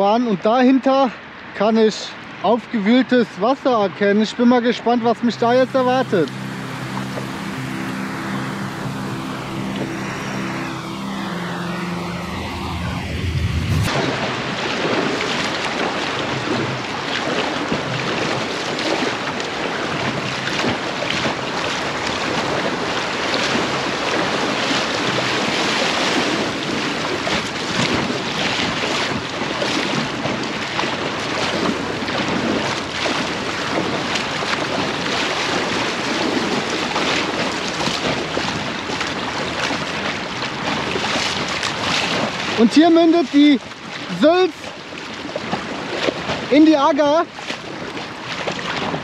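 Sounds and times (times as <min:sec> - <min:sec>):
fast-flowing river water rushing: 0:14.0 - 0:49.0.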